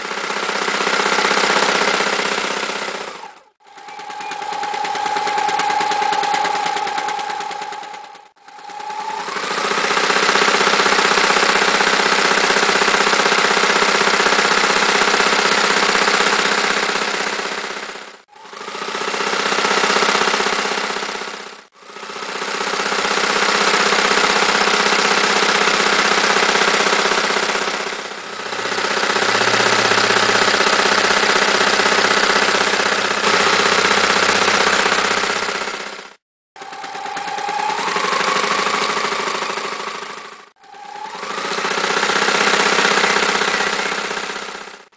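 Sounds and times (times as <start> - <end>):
electric sewing machine running: 0.0 - 44.9.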